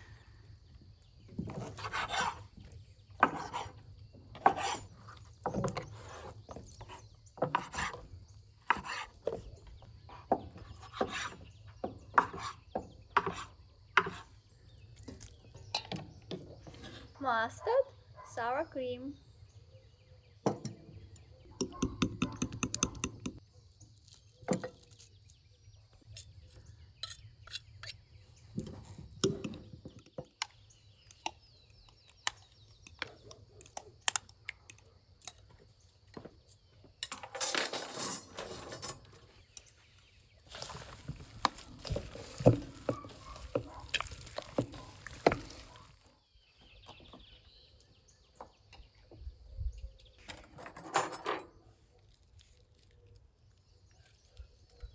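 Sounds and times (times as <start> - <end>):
wet handling and mixing: 39.8 - 46.2
spoons scraping bowls: 40.5 - 45.9.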